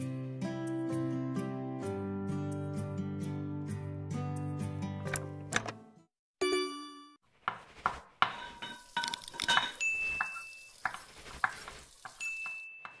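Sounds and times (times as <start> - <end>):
cutlery and dishes clinking: 8.3 - 13.0.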